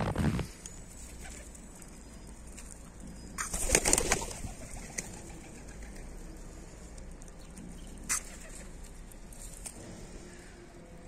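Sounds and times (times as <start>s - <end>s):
pigeon wings flapping: 3.4s - 6.0s.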